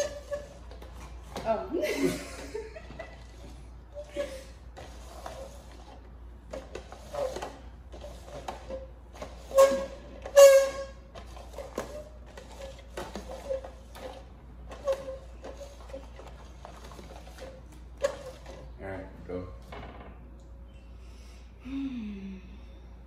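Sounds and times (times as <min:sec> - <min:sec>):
pitched squeaks: 0:00.0 - 0:01.1, 0:07.0 - 0:18.8
plastic cups sliding on glass: 0:03.2 - 0:18.7.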